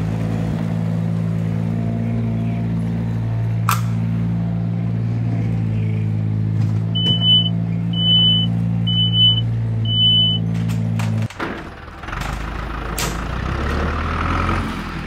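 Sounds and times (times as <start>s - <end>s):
reversing alarm beeps: 7.0s - 10.5s.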